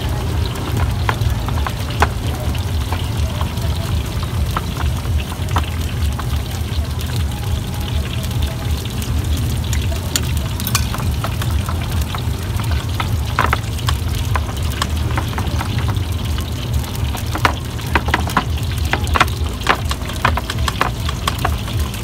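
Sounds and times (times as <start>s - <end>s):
knocks and clicks: 9.7s - 11.3s.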